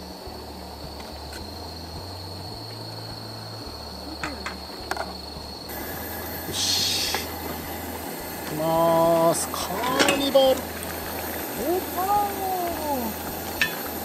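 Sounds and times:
pot steaming low rumble: 0.0s - 14.0s
short hiss: 5.7s - 12.6s.

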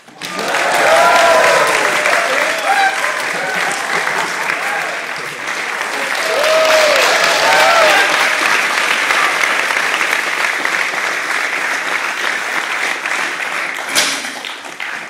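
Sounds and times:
audience applauding: 0.0s - 15.0s
whoops and cheers: 0.2s - 5.1s, 6.0s - 8.5s.

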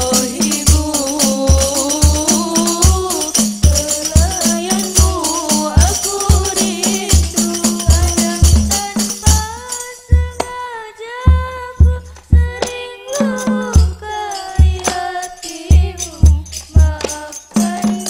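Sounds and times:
frame drums beating a rhythm: 0.0s - 18.0s
girls singing: 0.0s - 18.0s
bass drums beating: 10.2s - 10.4s, 11.3s - 12.7s.

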